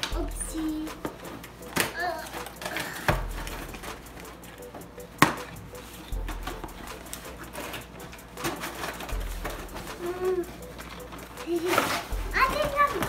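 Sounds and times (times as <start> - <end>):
cardboard scraping and rustling: 5.8 - 10.1, 11.0 - 13.0.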